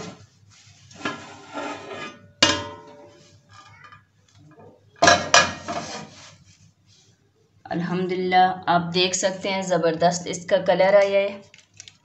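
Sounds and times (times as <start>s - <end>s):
pot lid scraping: 0.0s - 0.3s, 0.9s - 3.7s, 5.1s - 6.4s
metal pot lid clanking: 1.0s - 3.2s.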